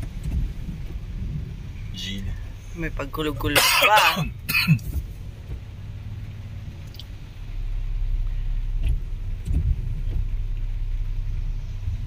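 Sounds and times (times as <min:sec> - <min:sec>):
engine and road rumble: 0:00.0 - 0:12.0.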